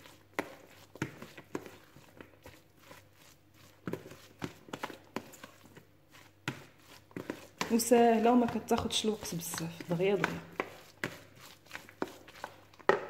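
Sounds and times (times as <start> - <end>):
soft scraping in bowl: 0.0 - 12.9
utensil tapping plastic bowl: 7.6 - 11.2, 12.8 - 13.0.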